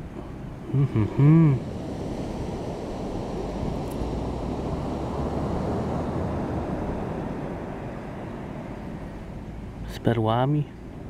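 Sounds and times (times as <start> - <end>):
sea surf rushing: 0.0 - 11.0
wind buffeting microphone: 1.4 - 10.0.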